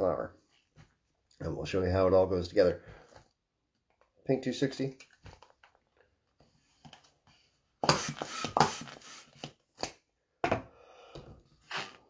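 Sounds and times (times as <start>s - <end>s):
hand pump air strokes: 7.8s - 9.5s.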